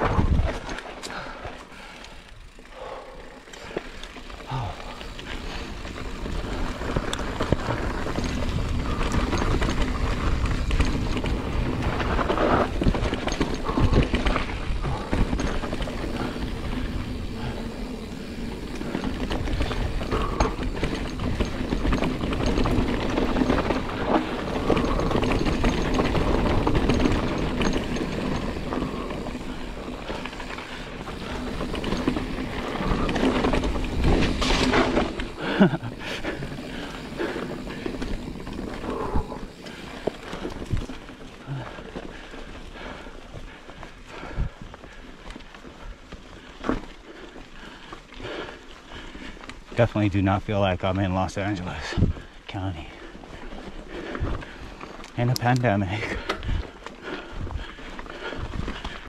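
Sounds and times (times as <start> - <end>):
wind rumble on microphone: 0.0 - 0.8
bike rattling over rocks: 0.0 - 59.0
bike tyres on dirt trail: 0.0 - 59.0.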